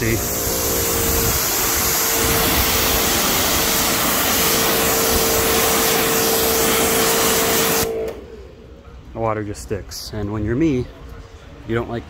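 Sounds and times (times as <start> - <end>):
pressure washer spray hiss: 0.0 - 8.2
pressure washer hum: 0.0 - 8.7.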